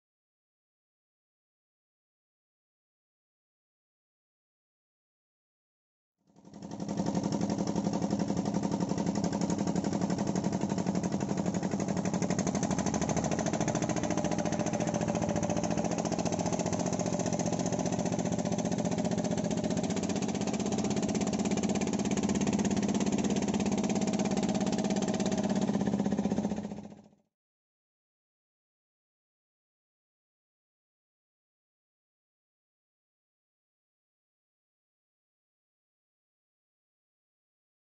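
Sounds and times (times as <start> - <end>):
boat engine running: 6.3 - 27.2.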